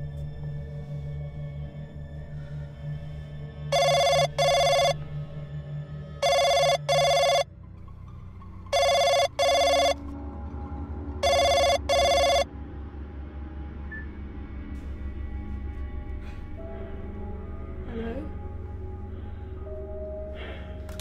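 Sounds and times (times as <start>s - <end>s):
telephone double ring: 3.8s - 5.0s, 6.2s - 7.4s, 8.8s - 10.0s, 11.2s - 12.4s.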